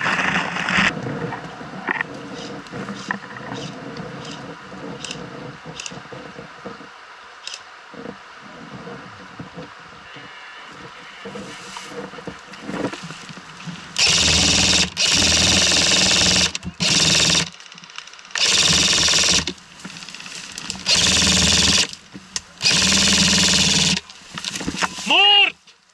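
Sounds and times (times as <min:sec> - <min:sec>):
faint rustling in brush: 0:07.9 - 0:14.0
airsoft rifle firing bursts: 0:14.0 - 0:17.5.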